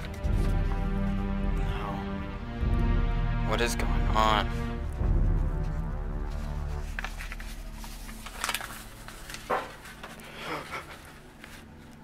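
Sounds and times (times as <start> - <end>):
low rumble: 0.3 - 9.4.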